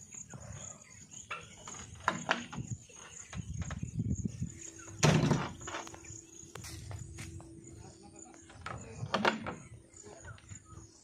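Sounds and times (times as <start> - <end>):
high insect chirring: 0.0 - 11.0
loud thump: 5.0 - 5.6.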